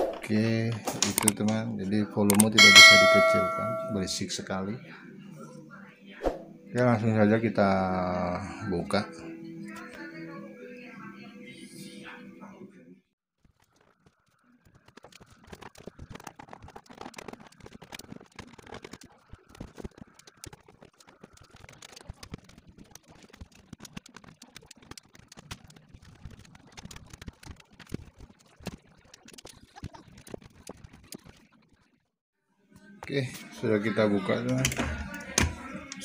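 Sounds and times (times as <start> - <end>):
screwdriver and plastic parts clicking: 0.7 - 1.6
faint steady high tone: 2.6 - 4.3.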